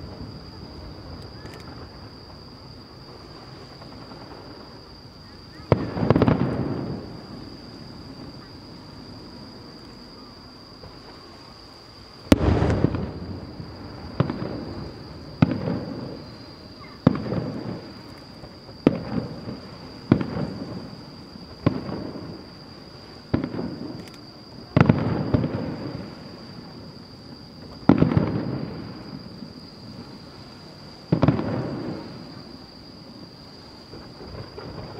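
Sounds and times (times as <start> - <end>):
distant firework bangs echoing: 3.1 - 9.3, 12.2 - 24.0, 24.7 - 26.7, 27.6 - 30.2, 31.0 - 32.5, 33.9 - 34.9.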